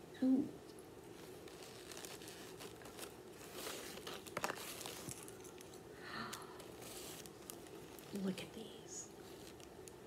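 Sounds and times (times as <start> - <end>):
packaging bag rustling and crinkling: 1.1 - 10.0.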